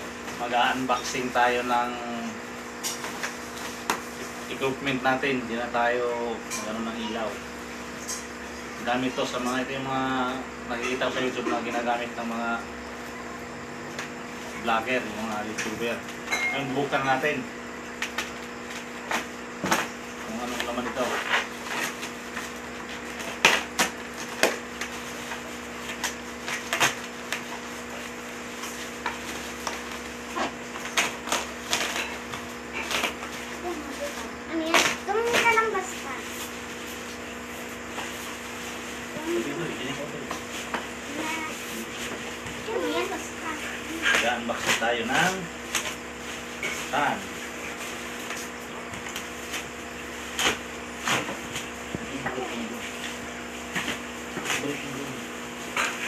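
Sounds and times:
plastic wrapping tearing and crumpling: 28.7 - 37.2.

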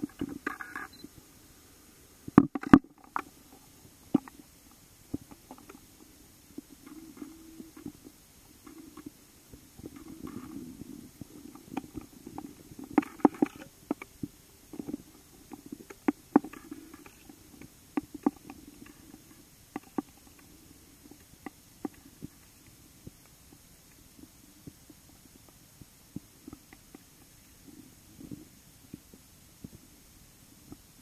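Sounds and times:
sharp underwater clicks: 0.0 - 1.1, 2.3 - 5.9, 9.8 - 27.6.

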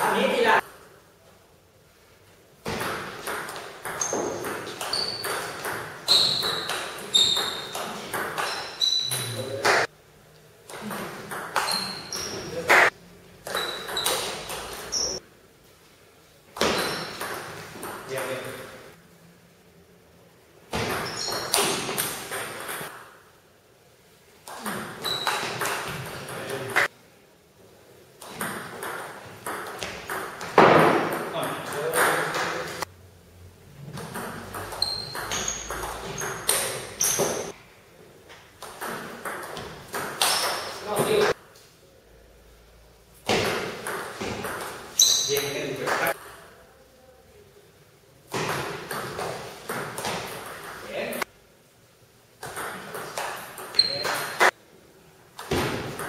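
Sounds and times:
ball bouncing on table: 2.7 - 9.9, 28.2 - 32.5, 48.3 - 50.8.

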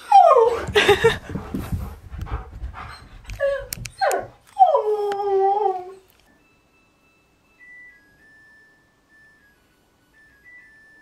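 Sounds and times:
dog whining woo-calls: 0.0 - 0.7, 2.9 - 6.1.

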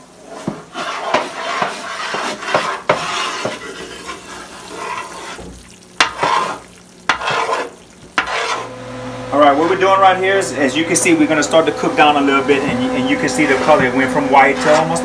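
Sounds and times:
metal spoon scraping pot: 0.2 - 8.7.

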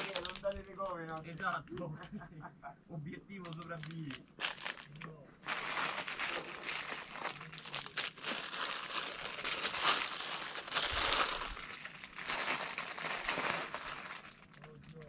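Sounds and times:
plastic bag crinkling: 0.0 - 1.6, 3.4 - 15.0.

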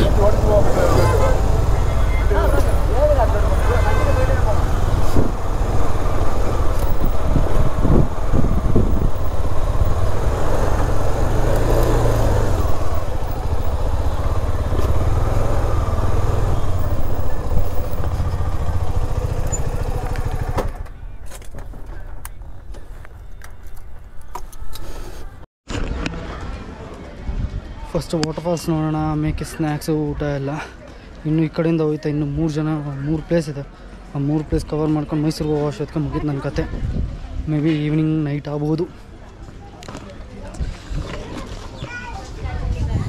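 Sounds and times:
motorcycle engine low rumble: 0.0 - 24.4.

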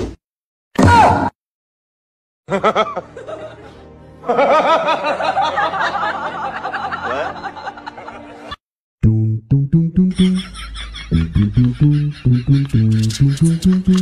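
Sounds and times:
background music: 2.5 - 14.0
snickering laugh: 10.1 - 13.8.

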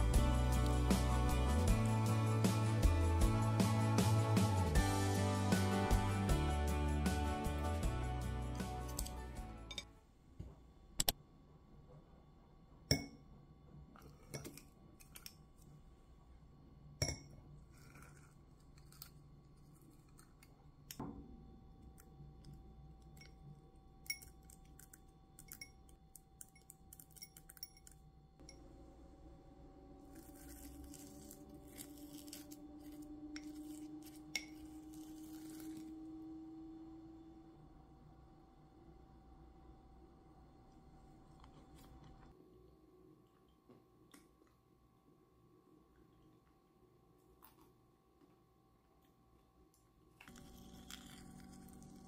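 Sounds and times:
spoon clinking in bowl: 24.0 - 24.8, 25.4 - 28.7, 34.3 - 34.7
faint hum rising in pitch: 28.4 - 43.8, 50.2 - 52.0
ice cream scoop scraping ceramic bowl: 30.1 - 36.0, 50.2 - 52.0.

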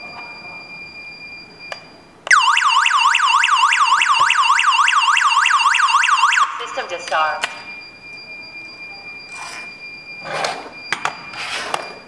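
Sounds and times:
burglar alarm siren wailing: 2.3 - 10.3.

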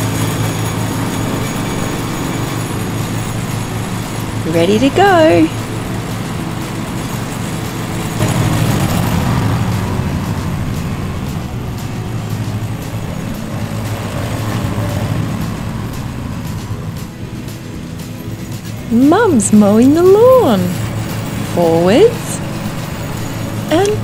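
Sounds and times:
ride-on lawn mower engine running: 0.0 - 24.0.

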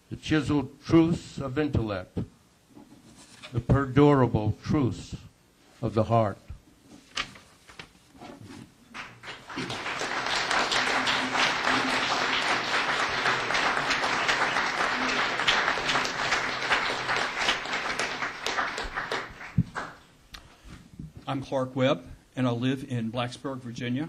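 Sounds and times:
audience applauding: 8.9 - 20.1.

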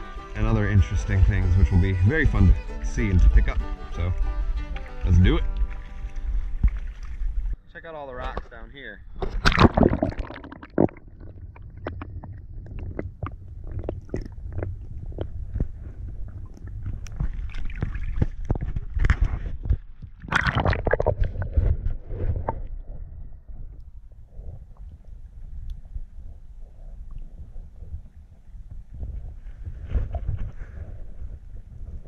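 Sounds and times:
muffled underwater rumble: 0.0 - 32.0
clicks and knocks underwater: 3.9 - 7.6, 8.2 - 32.0
gurgling splashes: 9.2 - 19.1, 20.2 - 22.8.

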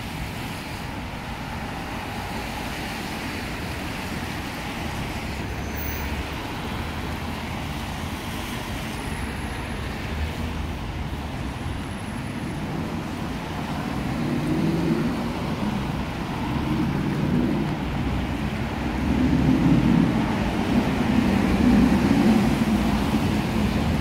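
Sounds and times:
tyres hissing on wet road: 0.0 - 24.0
vehicle rumble: 0.0 - 24.0.

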